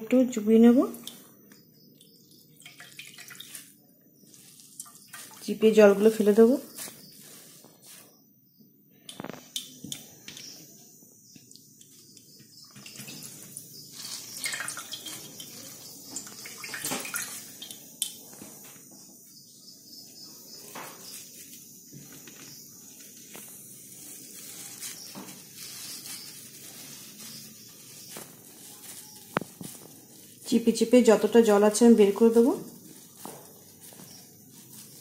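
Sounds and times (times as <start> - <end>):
water splashing and dripping: 2.5 - 3.7, 4.7 - 5.6, 12.8 - 18.2.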